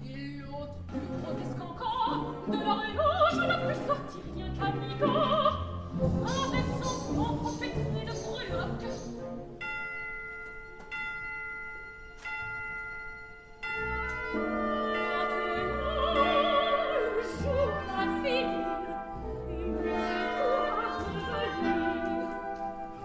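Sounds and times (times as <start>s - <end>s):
orchestra playing chords: 13.8s - 23.0s.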